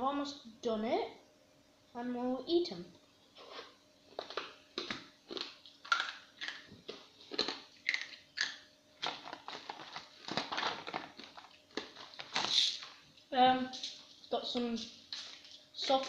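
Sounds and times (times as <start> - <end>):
jars and packets rustling and clicking: 4.2 - 16.0.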